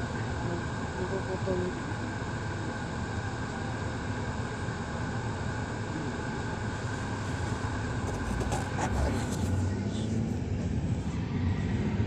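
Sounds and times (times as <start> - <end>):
cars passing slowly: 6.7 - 12.0.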